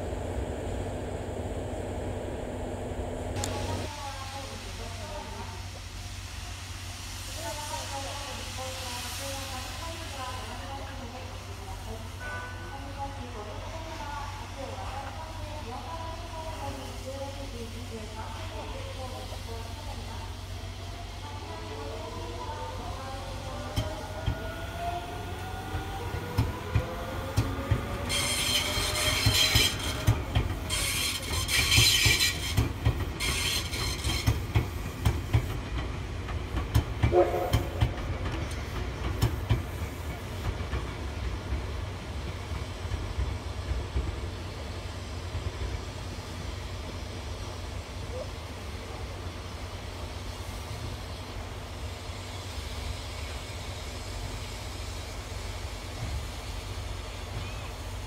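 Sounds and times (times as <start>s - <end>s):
distant steam locomotive rumble and hiss: 0.0s - 58.0s
high-pitched wheel squeal: 28.1s - 30.0s.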